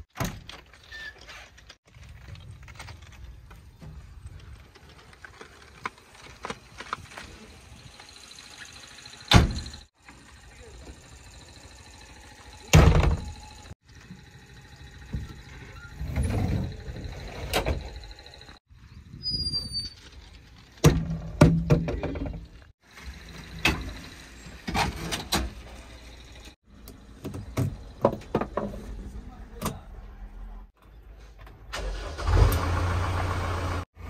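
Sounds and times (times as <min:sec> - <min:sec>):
cab door and fittings knocking: 0:27.2 - 0:28.8.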